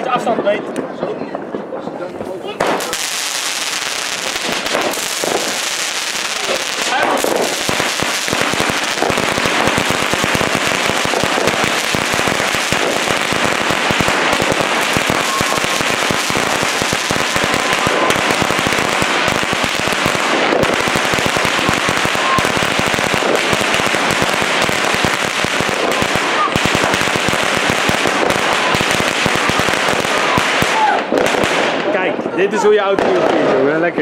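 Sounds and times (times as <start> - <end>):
firecrackers rapid bangs: 0.7 - 33.8.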